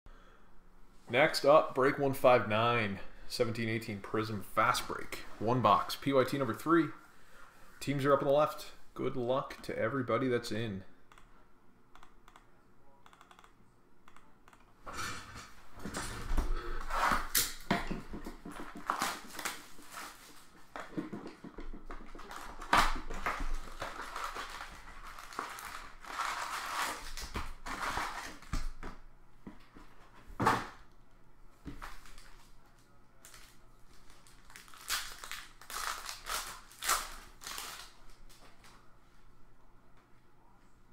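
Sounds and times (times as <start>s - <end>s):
card packs crinkling and rustling: 17.2s - 28.7s, 31.7s - 38.8s.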